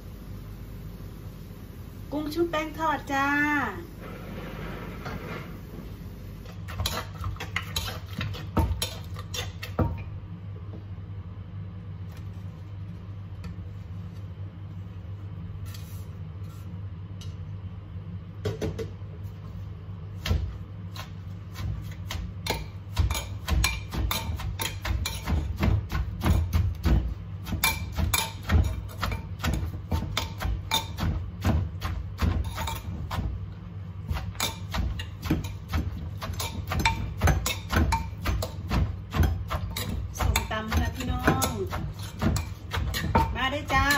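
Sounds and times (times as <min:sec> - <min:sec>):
steady low hum: 0:00.0 - 0:43.9
spoon stirring: 0:06.5 - 0:09.8, 0:27.5 - 0:33.3, 0:34.1 - 0:43.9
pestle pounding in clay mortar: 0:06.6 - 0:10.1, 0:20.2 - 0:43.9.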